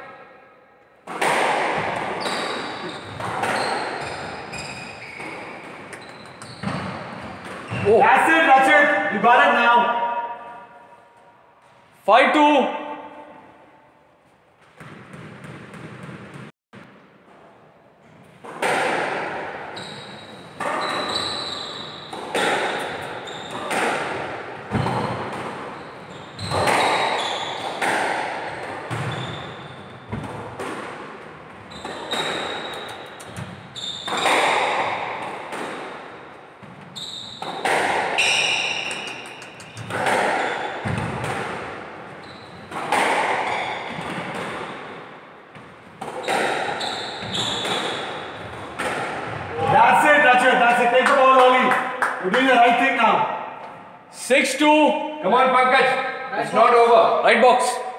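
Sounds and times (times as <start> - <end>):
squash ball hitting rackets and walls: 1.0 - 11.9, 12.8 - 52.7
sneakers squeaking on wooden floor: 1.8 - 8.0, 14.2 - 16.5, 19.6 - 35.8, 36.5 - 50.6.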